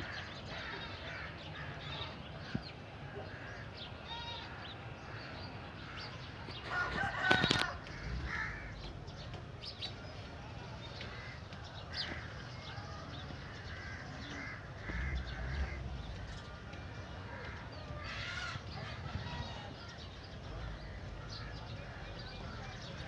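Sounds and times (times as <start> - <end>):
bird calls: 0.0 - 23.0
rooster crowing: 6.7 - 8.4.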